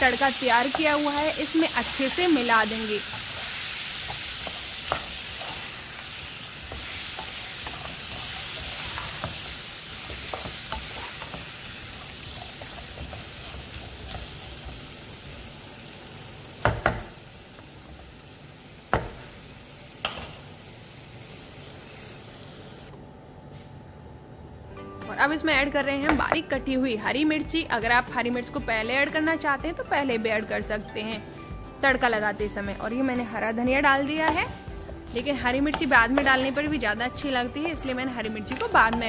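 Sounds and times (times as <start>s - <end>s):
frying sizzle: 0.0s - 22.9s, 33.8s - 39.0s.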